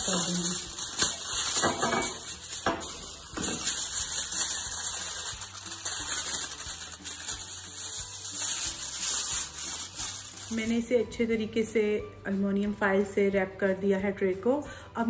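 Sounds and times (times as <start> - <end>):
kitchen foil crinkling: 0.0 - 11.0.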